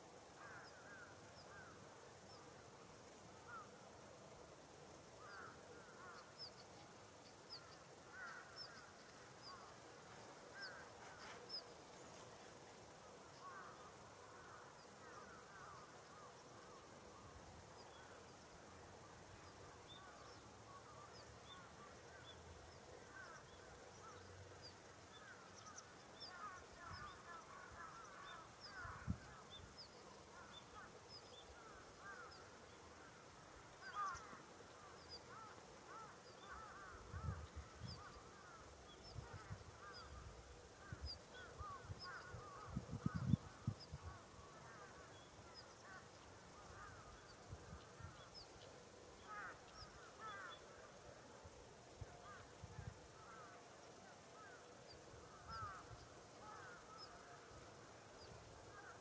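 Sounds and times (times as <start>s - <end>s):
crows calling: 0.4s - 1.8s, 5.2s - 6.4s, 7.6s - 9.8s, 13.4s - 16.3s, 25.2s - 29.5s, 30.4s - 33.2s, 33.8s - 43.4s, 44.0s - 48.2s, 49.2s - 50.9s, 55.3s - 57.4s, 58.7s - 59.0s.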